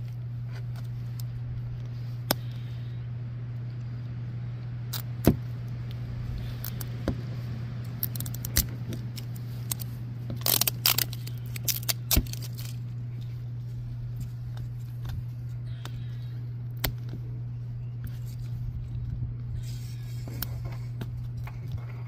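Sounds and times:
low hum: 0.0s - 22.0s
plastic wrapper clicks: 8.0s - 12.8s
plastic wrapper crinkling: 8.0s - 13.4s.

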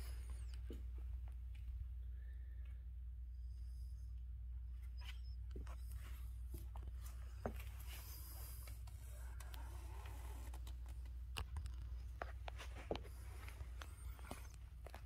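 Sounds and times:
steady low hum: 0.0s - 15.0s
footsteps on concrete: 6.5s - 8.8s, 12.2s - 15.0s.

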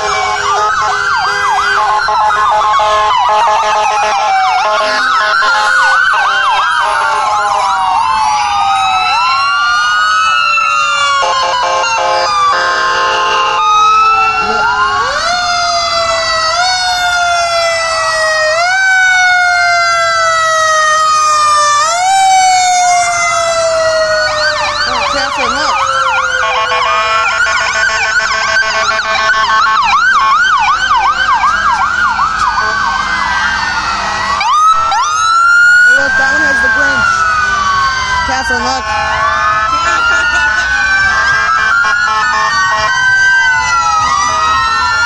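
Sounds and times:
horn blasts: 0.0s - 7.4s, 11.2s - 13.7s, 26.4s - 30.7s, 41.1s - 42.9s
emergency vehicle sirens wailing: 0.0s - 45.0s.

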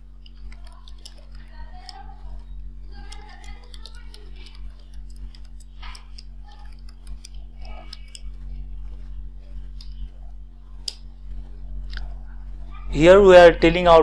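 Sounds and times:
low electrical hum: 0.0s - 14.0s
keyboard typing clicks: 0.2s - 2.0s, 3.0s - 8.3s.

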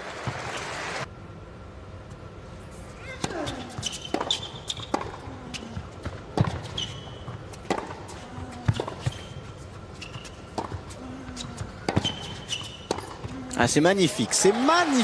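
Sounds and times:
racket hitting tennis ball: 3.2s - 9.4s, 10.1s - 13.4s
tennis ball bouncing on court: 3.2s - 13.4s
shoe squeaks: 3.3s - 5.0s, 6.4s - 7.5s, 8.7s - 10.6s, 11.4s - 13.2s.

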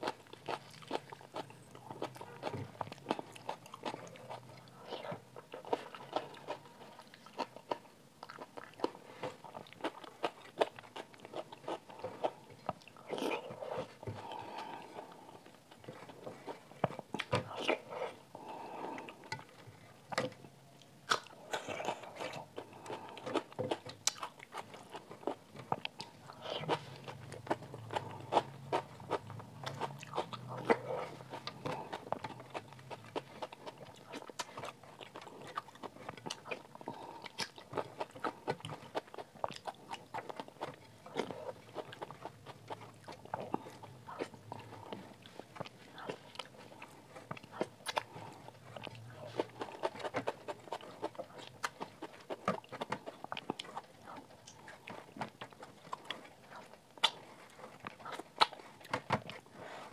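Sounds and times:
wet chewing and mouth smacks: 0.0s - 59.9s.

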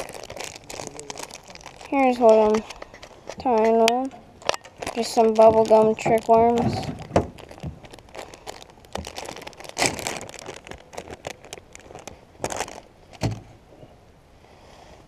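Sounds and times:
plastic bag crinkling: 0.0s - 13.2s
thump: 13.2s - 13.5s.

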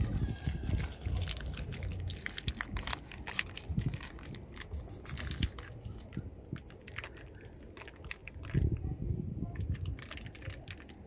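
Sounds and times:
cats chewing food: 0.0s - 8.8s.

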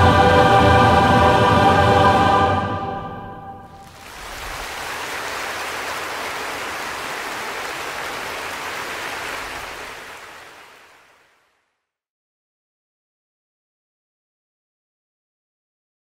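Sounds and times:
choir and orchestra chord: 0.0s - 3.9s
large audience applauding: 3.7s - 11.6s.

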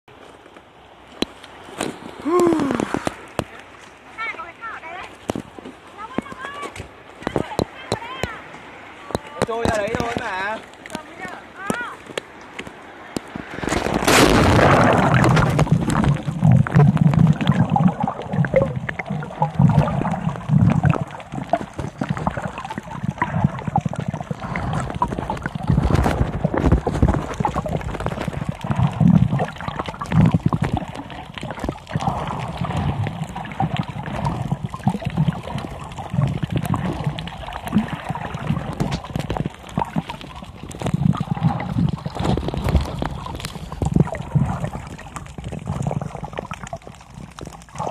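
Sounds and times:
muffled underwater sloshing: 0.1s - 47.9s
low pulsing rumbles: 13.2s - 47.9s.

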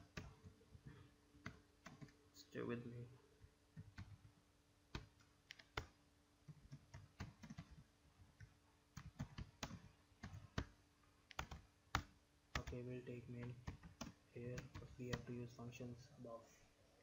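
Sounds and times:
keyboard typing clicks: 9.0s - 12.8s.

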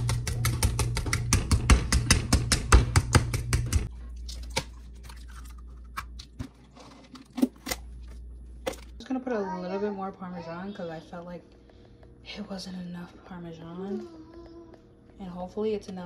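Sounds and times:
taps and knocks: 0.0s - 3.9s.

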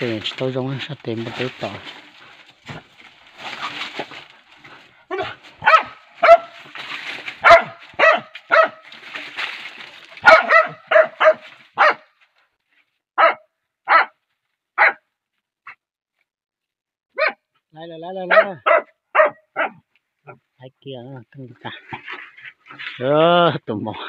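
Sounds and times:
rustling and scuffling: 0.0s - 13.0s, 21.6s - 23.1s
dogs barking: 5.1s - 6.8s, 7.4s - 8.9s, 10.2s - 12.1s, 13.2s - 14.2s, 14.8s - 15.0s, 17.2s - 17.4s, 18.2s - 20.4s.

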